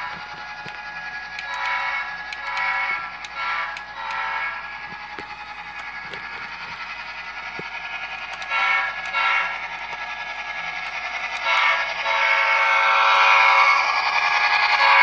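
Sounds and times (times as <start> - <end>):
model train running on track: 0.0 - 15.0
model train horn blasts: 1.4 - 4.6, 8.4 - 9.6, 11.4 - 13.7.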